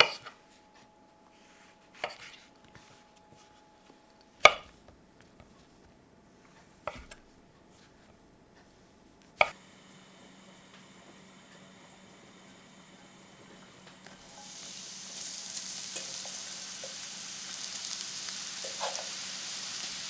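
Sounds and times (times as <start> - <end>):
frying pan oil hissing: 14.2 - 20.0.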